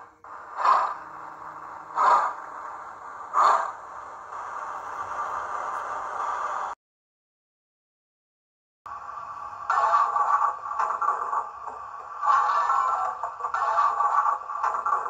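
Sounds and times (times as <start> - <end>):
model steam locomotive chuffs: 0.0 - 6.8, 8.9 - 15.0
steady hiss: 0.0 - 6.8.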